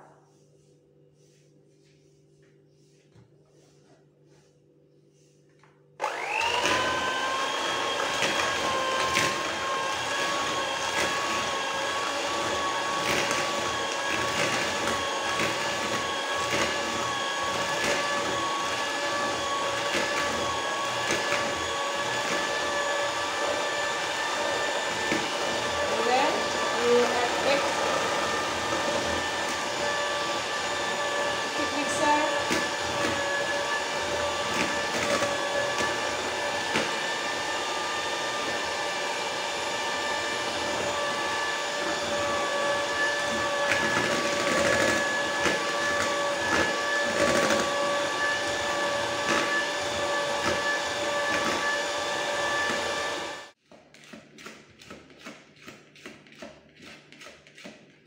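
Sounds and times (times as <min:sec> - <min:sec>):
electric hand mixer whirring: 0:06.0 - 0:58.0
spatula scraping and tapping bowl: 0:53.6 - 0:58.0.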